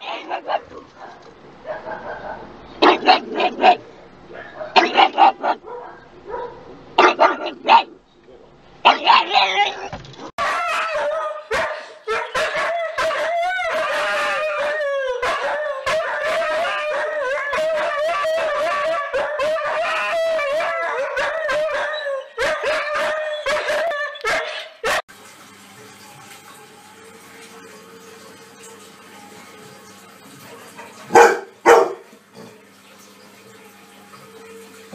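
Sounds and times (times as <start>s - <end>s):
dogs howling: 10.4s - 25.0s
washing machine running: 25.1s - 34.9s.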